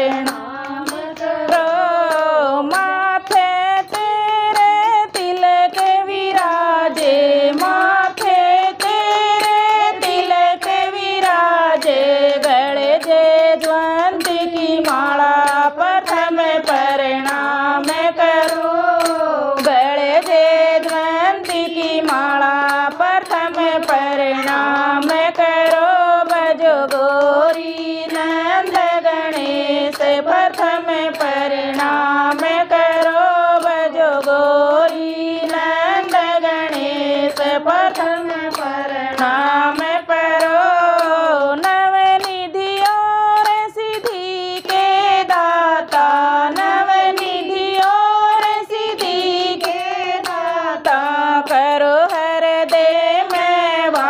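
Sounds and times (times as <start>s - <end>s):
hand claps: 0.0s - 54.0s
women singing: 0.0s - 54.0s.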